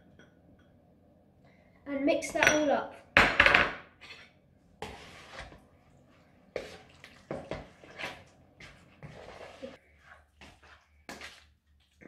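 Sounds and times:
kitchenware clinking: 0:02.3 - 0:04.4
wet squelching and scraping in bowl: 0:04.8 - 0:12.0.

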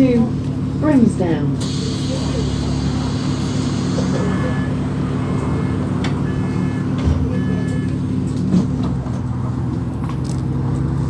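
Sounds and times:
bus engine running: 0:00.0 - 0:11.0
electronic warning beeps: 0:04.1 - 0:08.0.

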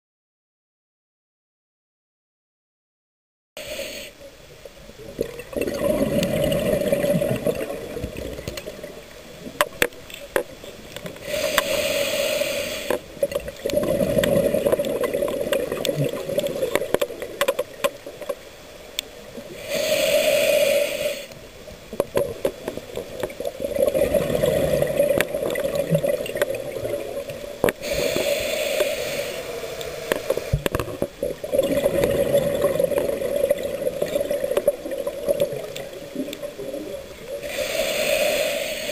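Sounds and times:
regulator inhale hiss: 0:03.6 - 0:04.3, 0:11.2 - 0:13.2, 0:19.5 - 0:21.5, 0:27.7 - 0:30.8, 0:37.3 - 0:38.9
exhaled bubbles gurgling: 0:04.9 - 0:18.4, 0:19.3 - 0:38.9.

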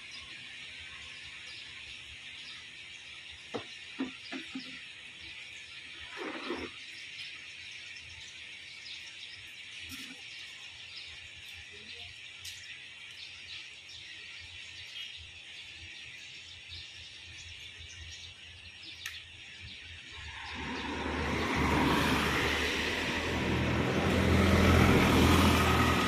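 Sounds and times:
birds chirping: 0:00.0 - 0:26.0
distant turboprop engines hissing: 0:20.1 - 0:26.0
loud engine rush: 0:20.2 - 0:26.0.

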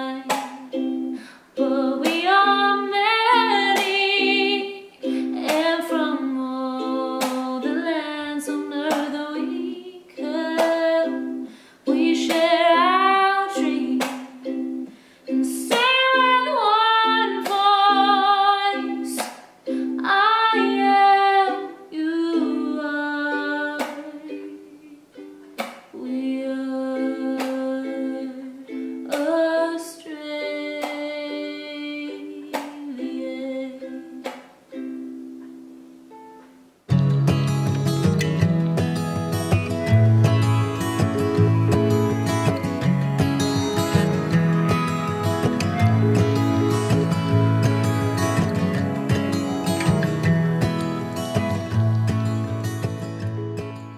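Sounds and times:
woman singing with vibrato: 0:00.0 - 0:14.5, 0:15.3 - 0:19.2, 0:19.9 - 0:25.2, 0:26.0 - 0:34.2
ukulele strumming: 0:00.0 - 0:53.9.

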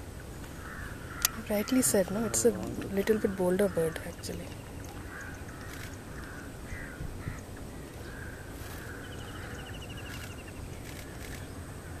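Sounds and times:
steady low rumble: 0:00.0 - 0:12.0
hoarse bird calls: 0:00.6 - 0:12.0.

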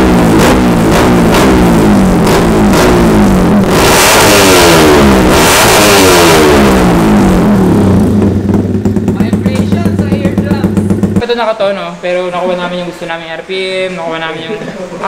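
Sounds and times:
motorcycle engine revving: 0:00.0 - 0:11.6.

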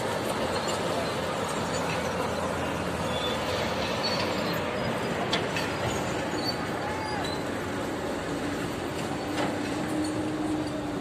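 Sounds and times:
city traffic: 0:00.0 - 0:11.0
heavy machinery diesel engines: 0:00.0 - 0:11.0.

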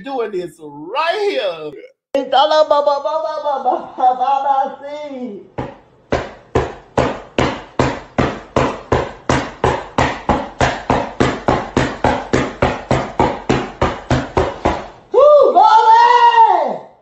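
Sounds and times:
rapid sharp pounding thumps: 0:05.6 - 0:15.0.

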